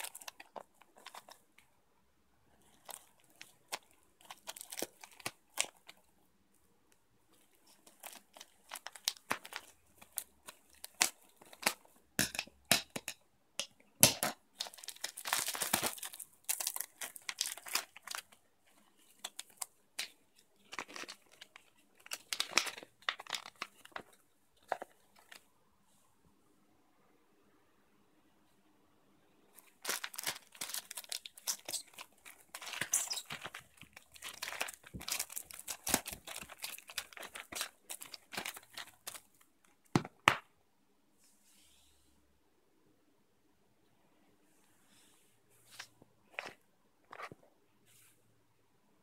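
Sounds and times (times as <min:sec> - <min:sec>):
plastic wrap crinkling: 0:00.0 - 0:01.4, 0:02.6 - 0:06.1, 0:07.3 - 0:12.0, 0:14.2 - 0:25.4, 0:29.6 - 0:39.7
plastic tearing: 0:14.0 - 0:18.4, 0:29.6 - 0:39.3
scissors cutting plastic: 0:31.4 - 0:38.7.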